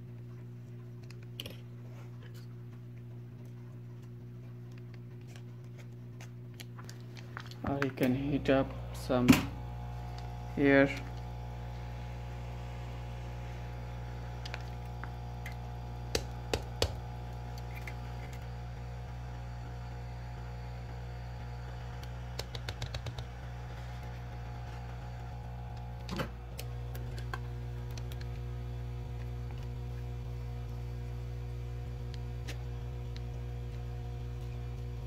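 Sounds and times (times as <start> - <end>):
hot air gun humming and hissing: 8.0 - 27.7.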